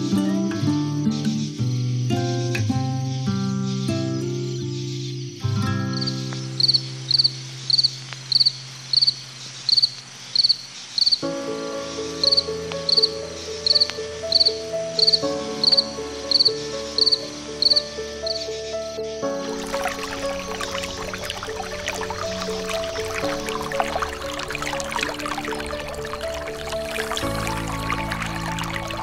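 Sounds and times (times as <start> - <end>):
insect chirping: 1.0 - 29.0
background music: 11.2 - 29.0.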